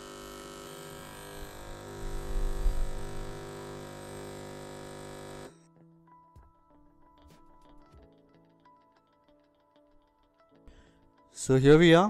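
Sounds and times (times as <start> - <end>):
espresso machine pump humming: 0.0 - 5.5.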